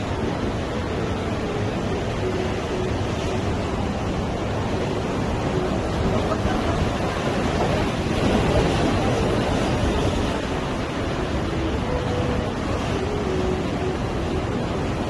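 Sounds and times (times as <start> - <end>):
sea waves breaking on a beach: 0.0 - 15.0.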